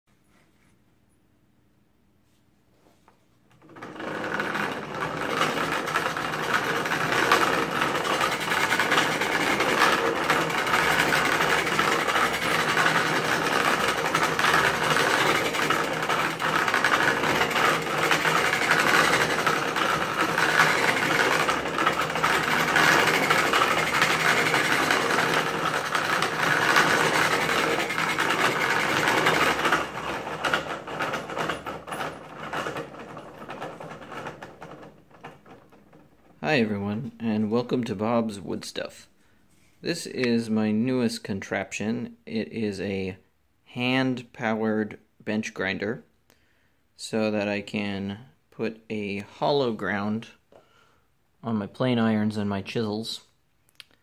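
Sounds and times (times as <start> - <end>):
hand-cranked grinder grinding: 3.5 - 37.8
fast rattling clicks of gears: 3.6 - 36.4.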